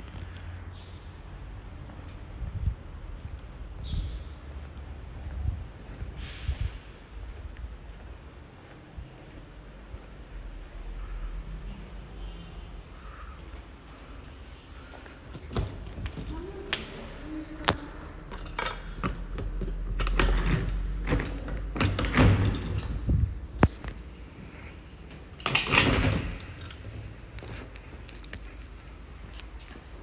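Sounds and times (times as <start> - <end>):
keys jangling: 18.3 - 19.1, 25.4 - 27.1
door clattering open: 18.3 - 23.1, 25.4 - 26.9
metal door latch clicking: 25.4 - 26.8.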